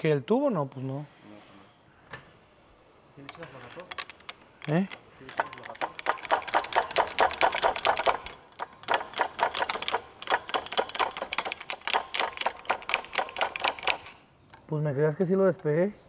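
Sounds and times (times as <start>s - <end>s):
ratchet wrench clicking: 3.2s - 14.2s.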